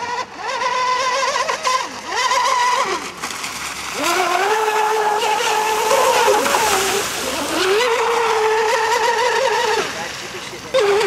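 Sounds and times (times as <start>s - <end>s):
electric motor whining: 4.0s - 9.8s.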